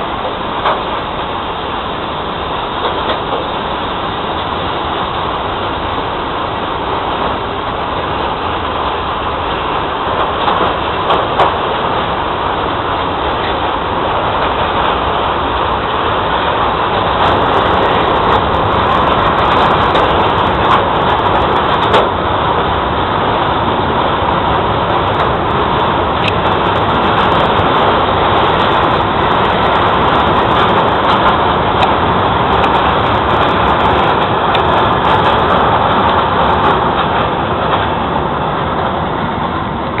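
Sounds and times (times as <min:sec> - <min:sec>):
train wheels rumbling on rails: 0:00.0 - 0:40.0
sharp clicks and clanks: 0:00.2 - 0:01.0, 0:02.8 - 0:03.6, 0:10.0 - 0:12.0, 0:17.0 - 0:22.2, 0:24.9 - 0:38.8.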